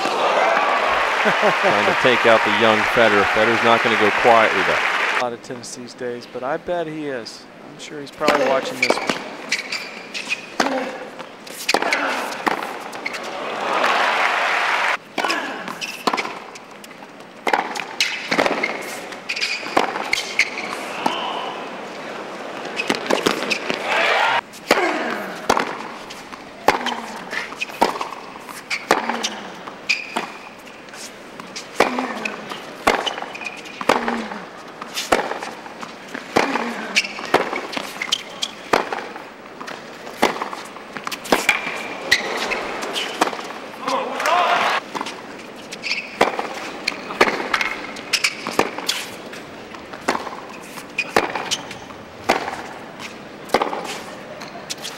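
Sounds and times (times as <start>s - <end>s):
crowd noise: 0.0s - 6.6s, 7.9s - 15.0s, 20.0s - 24.4s, 30.6s - 54.9s
racquets striking ball: 22.8s - 30.6s, 31.4s - 54.5s.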